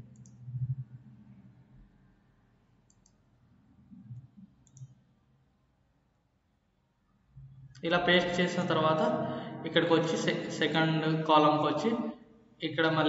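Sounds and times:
computer mouse clicks: 0.1 - 0.4, 2.9 - 3.2, 4.1 - 5.0.

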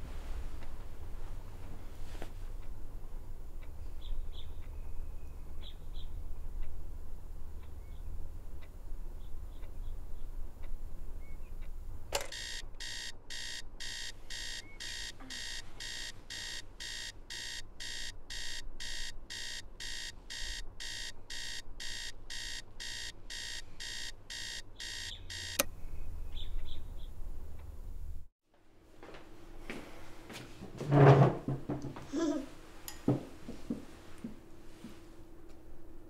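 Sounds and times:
alarm clock switch click: 12.2 - 25.7
electronic alarm clock beeping: 12.2 - 25.7.

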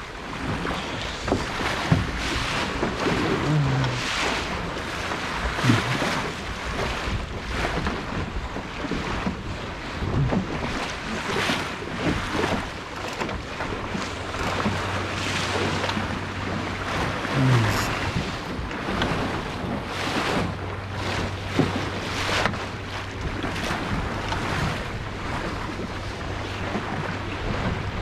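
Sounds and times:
water slapping along a hull: 0.0 - 28.0
wind buffeting microphone: 0.0 - 28.0.

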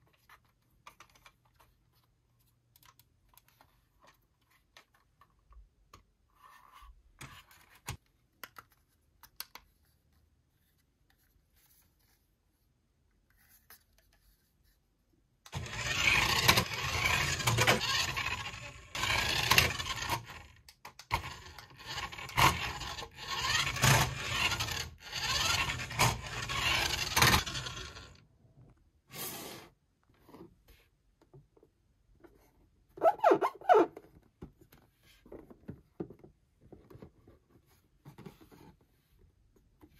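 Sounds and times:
toy car motor running: 15.5 - 28.2.

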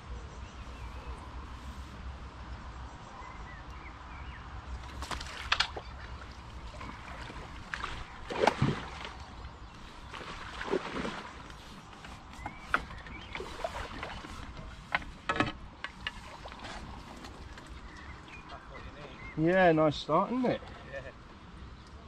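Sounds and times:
fish splashing: 4.8 - 14.7.

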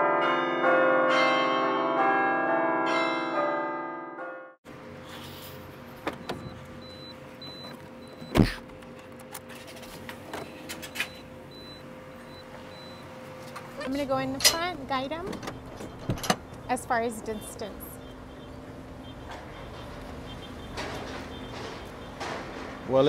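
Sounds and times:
chiming bell-like music: 0.0 - 4.5
scattered clicks and knocks: 19.2 - 23.0.

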